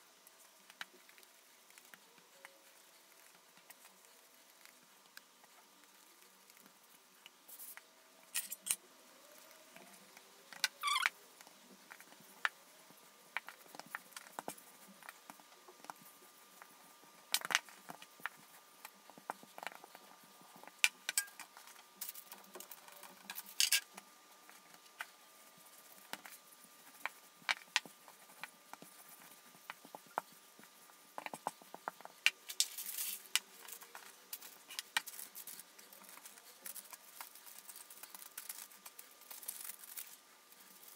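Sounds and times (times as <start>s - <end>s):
parchment paper rustling: 24.4s - 40.9s.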